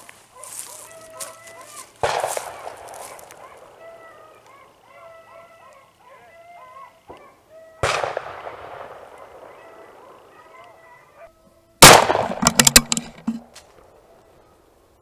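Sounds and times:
gunshots with echo: 0:02.0 - 0:03.2, 0:07.8 - 0:10.2, 0:11.8 - 0:13.0
gun being handled: 0:12.2 - 0:13.7.

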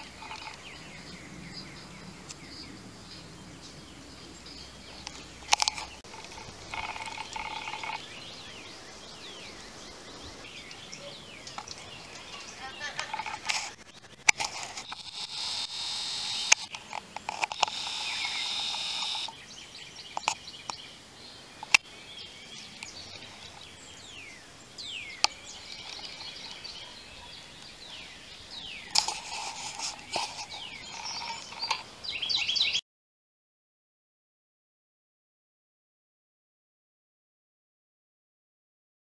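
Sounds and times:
high birdsong: 0:00.0 - 0:32.8
songbirds chirping: 0:00.0 - 0:32.8
sharp clicks: 0:05.0 - 0:08.0, 0:11.5 - 0:19.4, 0:21.6 - 0:21.9, 0:28.9 - 0:31.9.

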